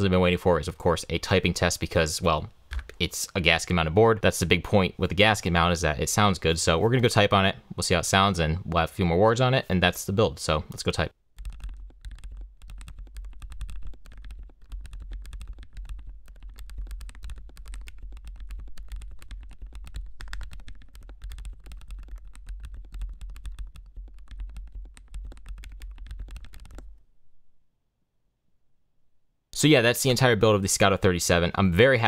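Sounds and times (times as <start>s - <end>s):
mechanical keyboard typing: 11.4s - 26.9s.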